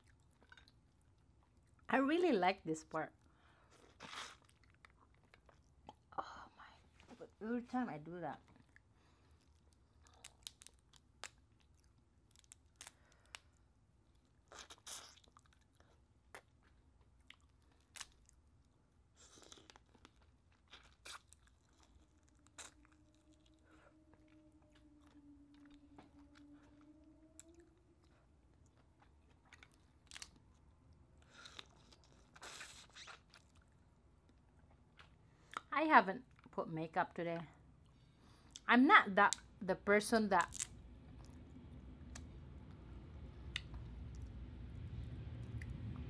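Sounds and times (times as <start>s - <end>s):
chewing: 3.6s - 6.1s, 8.4s - 18.4s, 19.1s - 30.6s.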